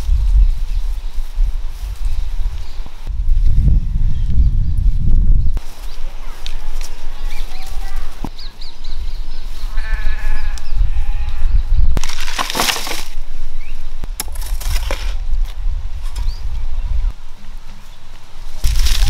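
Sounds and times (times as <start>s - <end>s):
farm animal bleating: 9.7s - 11.6s.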